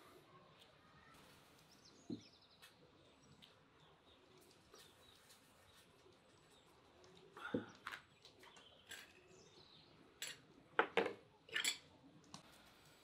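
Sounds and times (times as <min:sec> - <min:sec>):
birds chirping: 0:00.8 - 0:10.3.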